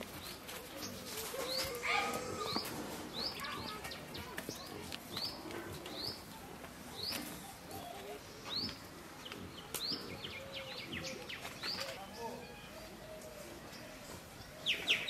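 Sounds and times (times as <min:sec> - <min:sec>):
scrapes and rustles: 0:00.0 - 0:10.2.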